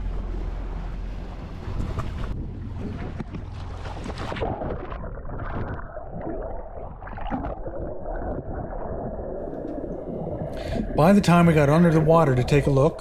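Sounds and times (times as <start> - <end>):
wind: 0.0 - 7.0
water splashing at surface: 1.6 - 12.7
muffled underwater bubbles and gurgling: 4.2 - 13.0.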